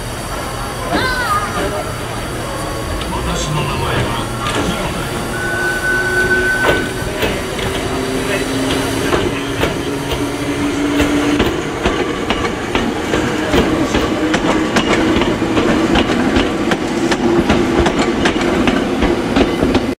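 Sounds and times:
electric train hum: 0.0 - 20.0
train wheels clattering over rail joints: 6.6 - 20.0.

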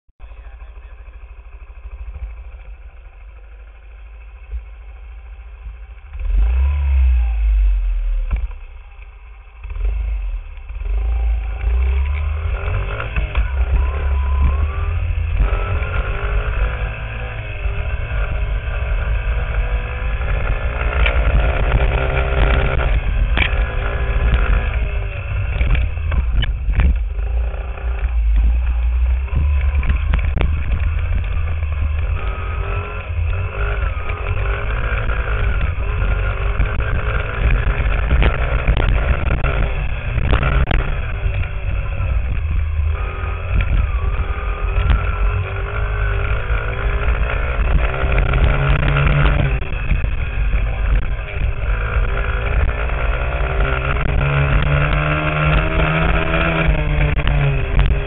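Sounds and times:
dirt bike engines revving: 0.2 - 58.0.

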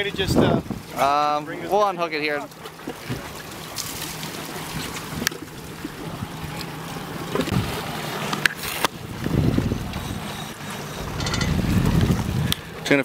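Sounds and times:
wind on microphone: 0.0 - 1.0, 7.4 - 7.9, 8.9 - 12.8
boat engine humming: 0.0 - 13.0.

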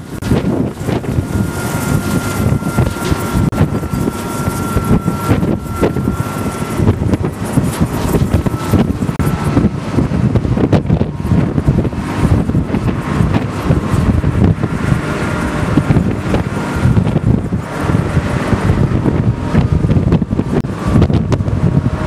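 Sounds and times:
gusty wind buffeting microphone: 0.0 - 22.0
thin high whine: 0.0 - 22.0.

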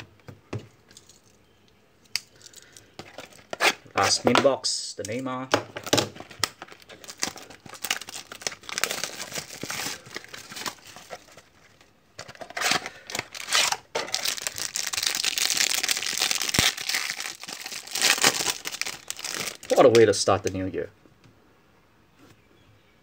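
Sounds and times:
cardboard and cards rustling: 5.5 - 20.1.

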